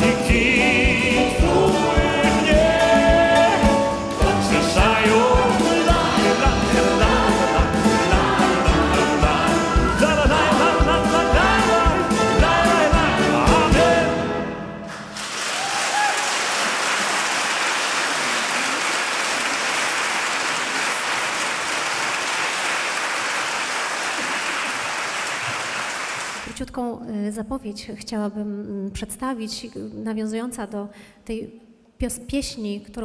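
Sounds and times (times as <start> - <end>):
steady drum beat: 0.0 - 14.1
choir and orchestra playing: 0.0 - 15.2
audience applause: 14.9 - 26.5.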